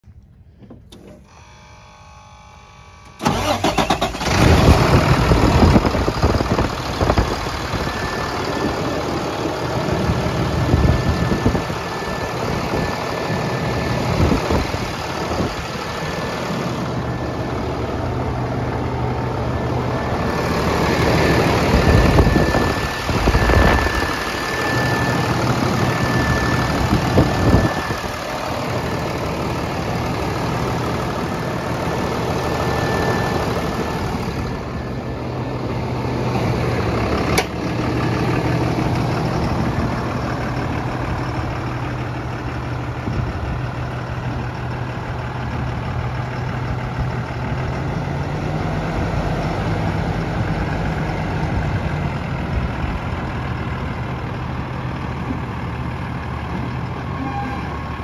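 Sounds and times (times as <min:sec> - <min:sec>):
diesel engine starting and idling: 0:00.0 - 0:58.0
high-pitched whine: 0:01.2 - 0:45.3.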